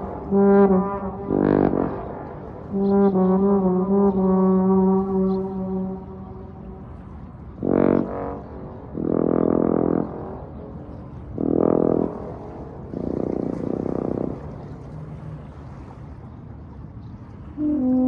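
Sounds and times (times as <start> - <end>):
trombone playing slow notes: 0.0 - 7.0, 7.6 - 14.5.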